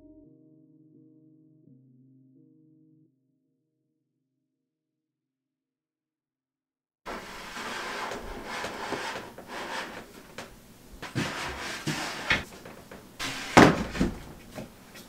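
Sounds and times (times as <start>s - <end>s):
wooden boards scraping: 7.1s - 15.0s
wooden knocks: 7.1s - 15.0s.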